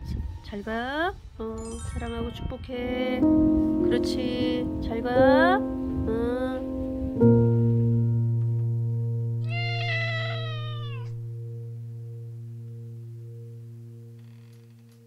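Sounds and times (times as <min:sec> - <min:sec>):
held musical note ringing: 0:01.6 - 0:15.0
cat meowing: 0:09.4 - 0:11.2.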